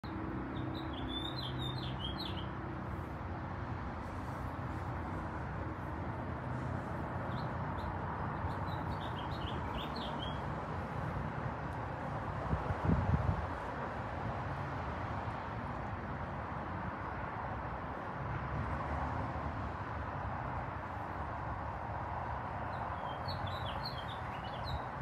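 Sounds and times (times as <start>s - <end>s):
small bird chirping: 0.6s - 2.5s, 7.3s - 10.4s.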